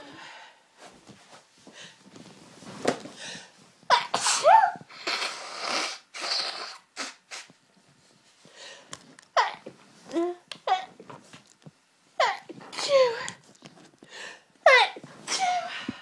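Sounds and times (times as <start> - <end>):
woman sneezing: 3.9 - 5.4.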